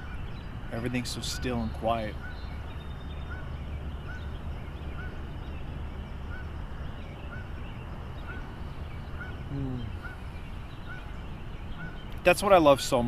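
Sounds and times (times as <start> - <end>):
faint short animal call: 9.5 - 10.2.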